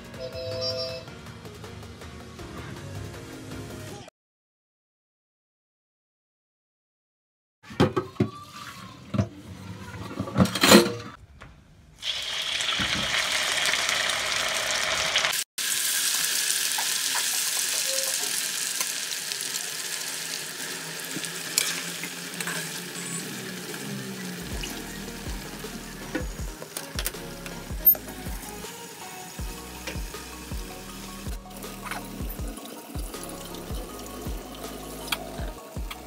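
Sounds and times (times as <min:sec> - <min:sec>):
deep-frying sizzle in hot oil: 0:12.0 - 0:26.3.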